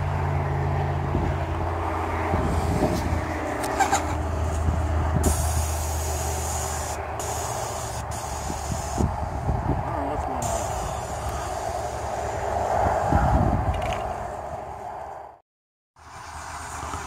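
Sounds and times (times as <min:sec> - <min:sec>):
spray gun hissing: 0:05.2 - 0:09.4, 0:10.4 - 0:12.1.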